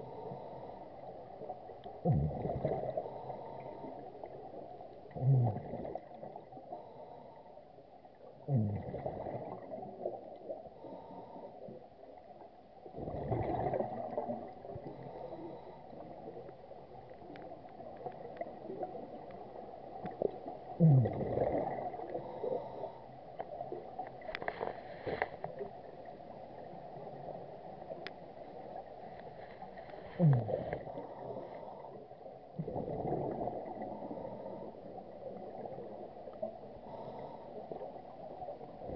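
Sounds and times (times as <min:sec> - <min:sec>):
regulator bubbles gurgling: 0:00.0 - 0:07.0, 0:08.0 - 0:24.6, 0:25.4 - 0:38.9
underwater background: 0:00.0 - 0:38.9.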